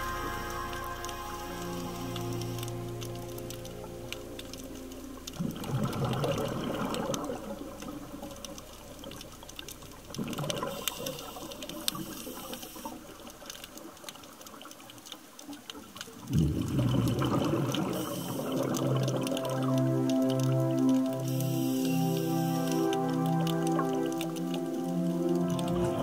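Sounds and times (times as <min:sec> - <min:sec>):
faint clicks crackling: 0:00.0 - 0:26.0
diver exhalation bubbles underwater: 0:05.4 - 0:08.1, 0:16.2 - 0:19.3, 0:25.5 - 0:26.0.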